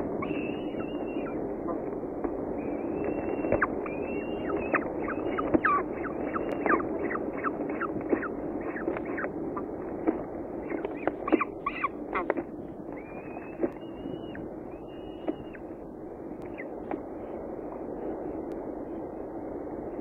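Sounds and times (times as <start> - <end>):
steady low hum: 0.0 - 20.0
falcon chick begging calls: 0.2 - 1.8, 2.6 - 9.7, 10.6 - 15.7.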